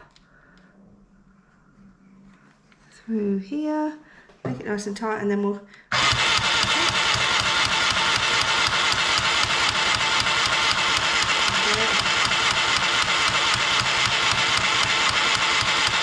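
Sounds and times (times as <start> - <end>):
toy sewing machine motor clattering: 5.9 - 16.0.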